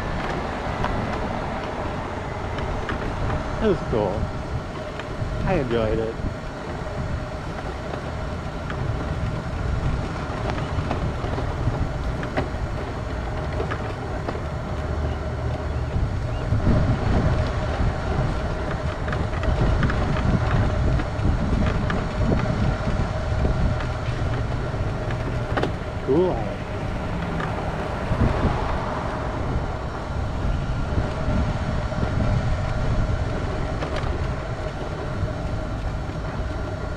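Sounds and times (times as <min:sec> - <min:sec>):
wind rumbling on microphone: 0:00.0 - 0:36.9.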